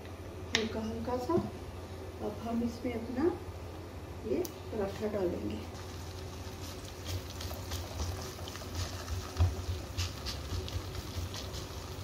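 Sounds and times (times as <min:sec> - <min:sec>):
oil crackling and popping: 0:05.7 - 0:12.0.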